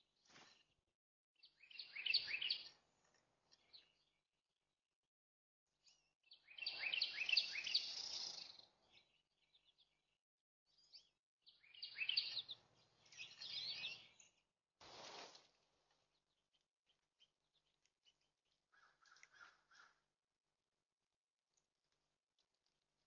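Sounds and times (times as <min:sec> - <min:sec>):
bird singing warbled phrases: 0:01.4 - 0:02.8, 0:05.8 - 0:10.1, 0:10.7 - 0:14.4
rustling noise: 0:14.8 - 0:15.6.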